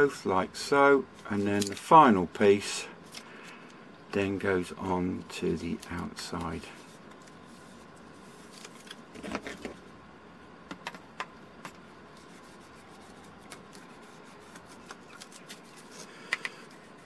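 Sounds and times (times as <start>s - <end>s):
tape rustling: 11.7s - 16.1s.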